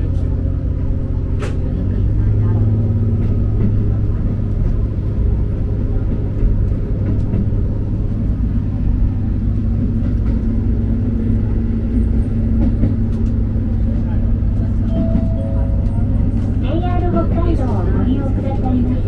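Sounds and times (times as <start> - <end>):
railcar engine drone: 0.0 - 19.0
wheels rumbling on rails: 0.0 - 19.0
higher hum: 14.9 - 18.4.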